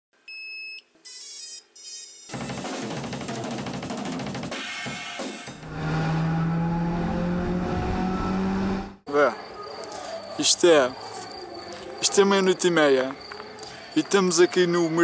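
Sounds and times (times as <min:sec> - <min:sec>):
fast drum beat: 0:02.3 - 0:05.4.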